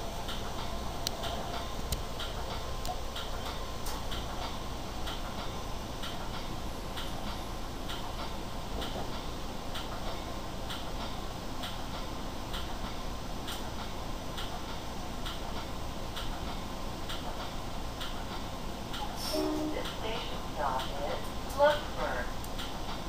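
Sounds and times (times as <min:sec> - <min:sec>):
train rumble: 0:00.0 - 0:23.0
train wheels clicking over rail joints: 0:00.0 - 0:23.0.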